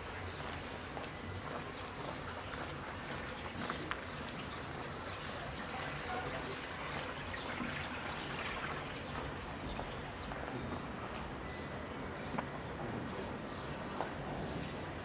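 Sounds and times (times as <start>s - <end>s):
water trickling and pouring: 1.6s - 10.0s.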